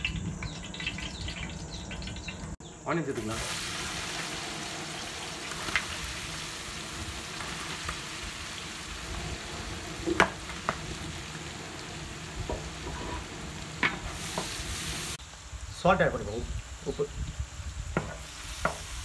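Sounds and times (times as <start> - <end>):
onions sizzling in hot oil: 3.1 - 15.2, 17.3 - 19.0.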